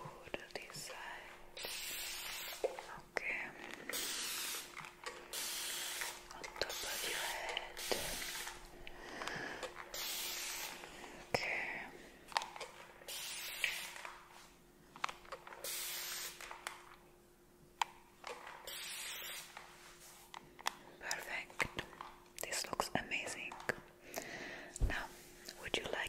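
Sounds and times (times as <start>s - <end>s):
spray bursts: 1.6s - 2.7s, 3.9s - 8.6s, 9.9s - 10.8s, 13.1s - 14.1s, 15.6s - 16.4s, 18.7s - 19.5s.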